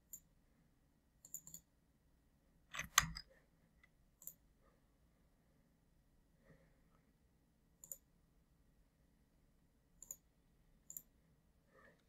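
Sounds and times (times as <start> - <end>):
computer mouse clicks: 1.2 - 1.7, 2.7 - 4.4, 7.8 - 8.1, 10.0 - 11.1.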